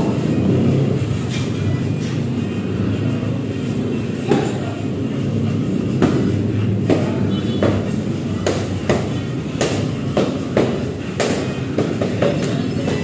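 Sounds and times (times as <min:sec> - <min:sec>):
steady low drone: 0:00.0 - 0:12.9
boxing gloves slapping mitts: 0:06.0 - 0:13.0.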